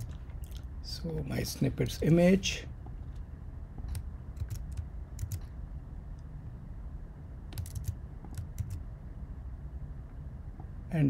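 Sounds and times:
low steady hum: 0:00.0 - 0:11.0
computer keyboard typing: 0:03.8 - 0:05.5, 0:07.5 - 0:08.8.

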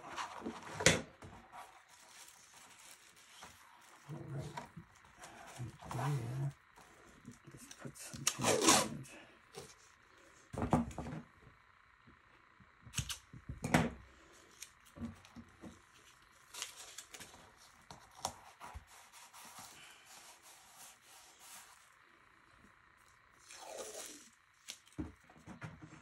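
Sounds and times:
tape tearing off roll: 0:08.2 - 0:09.0.

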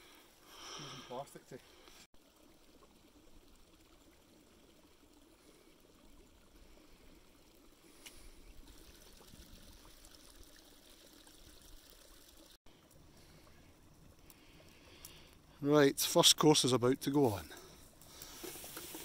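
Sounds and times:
faint steady hiss: 0:00.0 - 0:19.0
faint clicks: 0:14.2 - 0:15.4.

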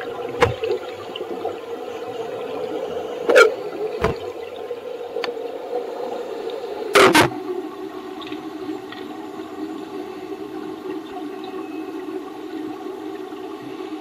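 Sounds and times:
diver's bubbles bursting: 0:00.0 - 0:09.2
steady underwater hum: 0:00.0 - 0:14.0.

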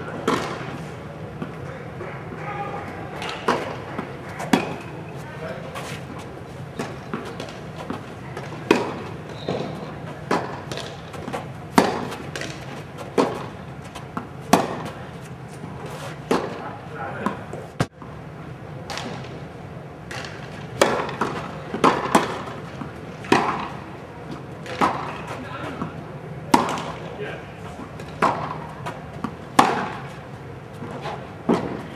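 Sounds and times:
tennis balls bouncing: 0:00.0 - 0:18.1, 0:20.1 - 0:27.2, 0:27.8 - 0:30.2, 0:30.8 - 0:31.9
tennis balls struck by rackets: 0:00.0 - 0:18.1, 0:18.8 - 0:19.4, 0:20.0 - 0:27.2, 0:27.8 - 0:30.2, 0:30.8 - 0:31.9.

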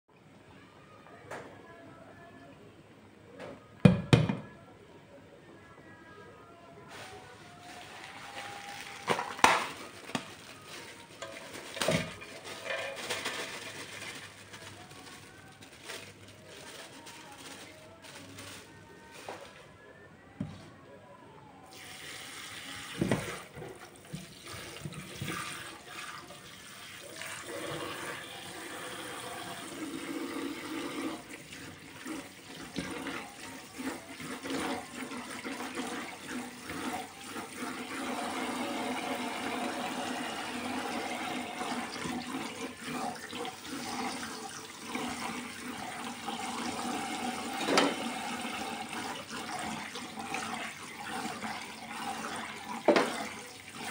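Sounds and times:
hands rinsing sprouts: 0:06.9 - 0:19.6.

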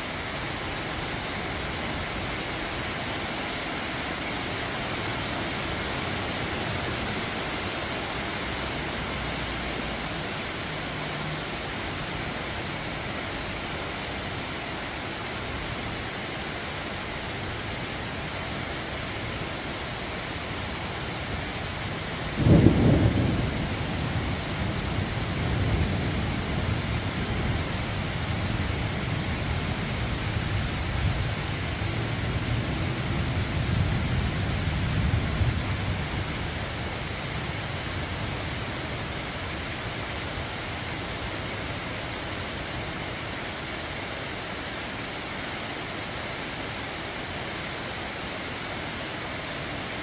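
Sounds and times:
rain hiss: 0:00.0 - 0:50.0
thunderclap rumbling: 0:22.3 - 0:28.0.

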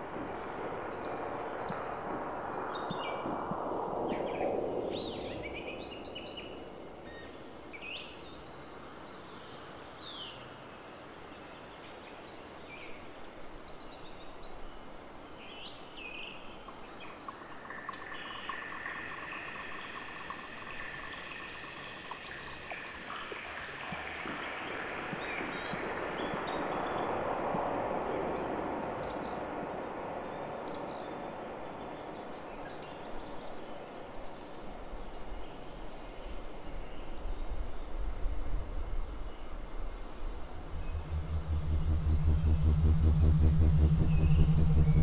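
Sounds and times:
broad rushing noise: 0:22.7 - 0:32.4, 0:38.6 - 0:45.0
electronic chirps and pitch glides: 0:40.4 - 0:45.0
steady chord of high tones: 0:40.4 - 0:45.0.

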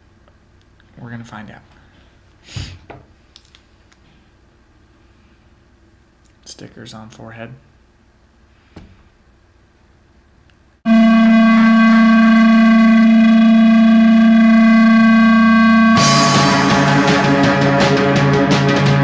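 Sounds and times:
buzzy synthesizer tone: 0:10.9 - 0:19.0
lower synthesizer tone: 0:10.9 - 0:19.0
loud music: 0:14.6 - 0:19.0.

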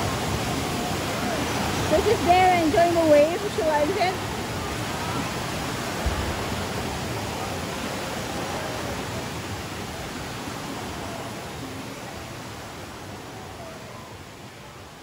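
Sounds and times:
water rushing in wave pool: 0:00.0 - 0:15.0
brief low thump: 0:06.0 - 0:06.5.

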